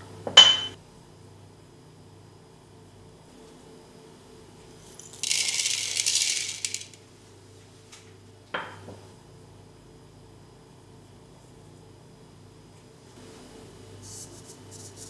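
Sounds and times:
peppercorns rattling into clay pot: 4.8s - 7.0s.

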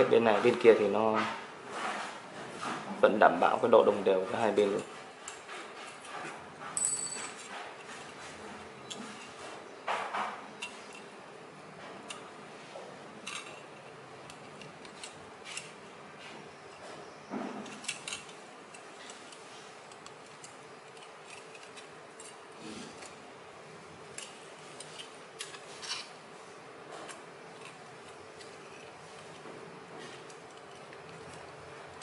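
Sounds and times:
aluminium strips crinkling: 17.6s - 23.3s, 24.0s - 32.0s.

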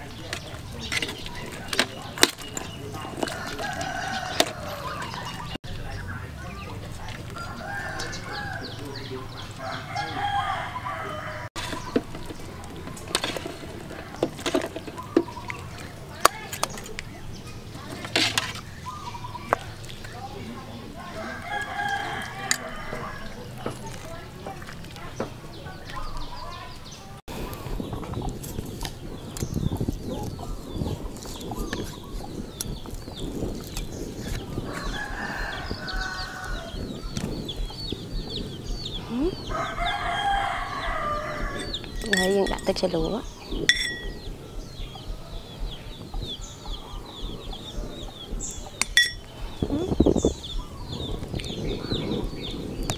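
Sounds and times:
small birds chirping: 0.0s - 52.9s
rooster crowing: 3.2s - 5.5s, 7.4s - 11.5s, 21.0s - 23.5s, 34.7s - 36.8s, 39.3s - 41.8s
ladle scraping metal pot: 11.6s - 16.0s, 17.7s - 18.8s, 43.6s - 44.2s, 48.8s - 49.3s.

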